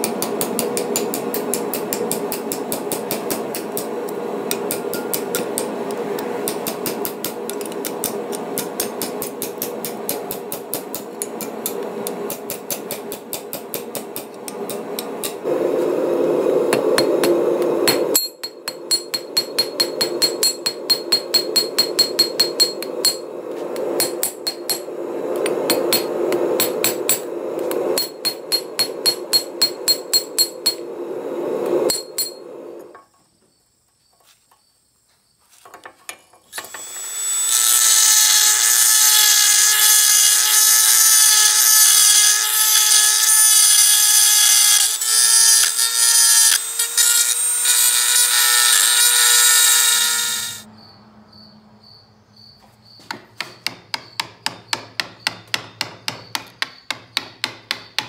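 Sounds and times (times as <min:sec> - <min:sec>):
hammer striking steel on anvil: 0:00.0 - 0:03.9, 0:04.5 - 0:15.4, 0:16.7 - 0:30.8, 0:31.9 - 0:33.0, 0:53.1 - 0:58.0
low rushing noise: 0:14.0 - 0:18.2, 0:18.8 - 0:32.9.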